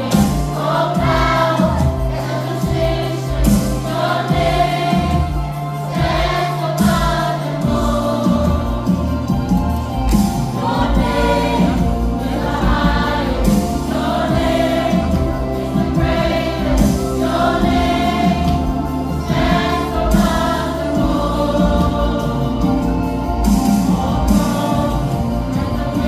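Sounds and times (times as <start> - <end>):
choir singing a hymn: 0.0 - 26.0.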